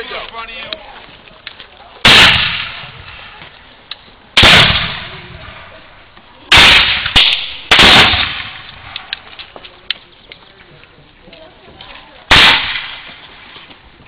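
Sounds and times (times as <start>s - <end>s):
musket shots: 2.0s - 3.3s, 4.4s - 5.7s, 6.5s - 9.3s, 12.3s - 13.3s.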